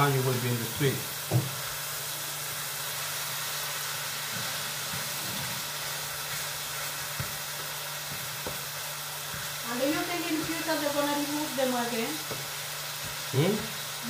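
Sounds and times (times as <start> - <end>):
meat sizzling in a frying pan: 0.0 - 14.0
spatula knocking on a pan: 1.3 - 1.6, 8.0 - 8.7.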